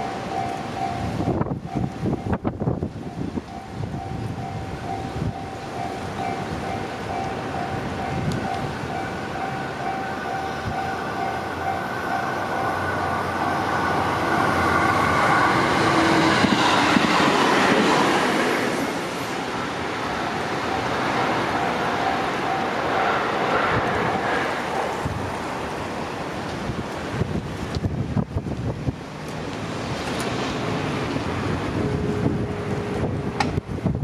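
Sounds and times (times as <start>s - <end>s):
level-crossing bell ringing: 0.0s - 2.4s, 3.6s - 14.6s, 20.2s - 22.8s
train passing: 0.0s - 34.0s.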